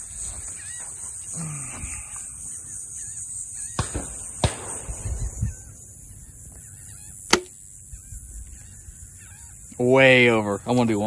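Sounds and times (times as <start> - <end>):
steady high hiss: 0.0 - 11.0
gunshots: 3.8 - 5.6.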